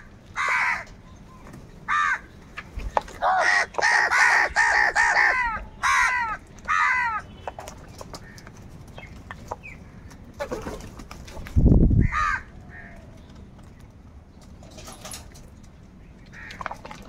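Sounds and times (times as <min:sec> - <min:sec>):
crows cawing: 0:00.0 - 0:00.9, 0:01.9 - 0:02.3, 0:03.2 - 0:07.5, 0:12.0 - 0:13.0, 0:16.3 - 0:16.8.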